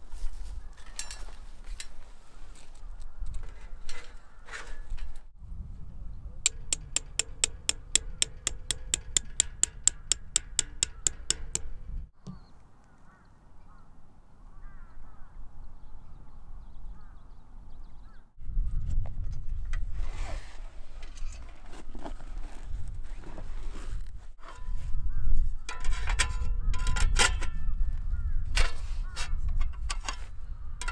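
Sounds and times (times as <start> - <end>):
hammer striking tent peg: 6.5 - 11.8
faint bird calls: 12.2 - 18.3.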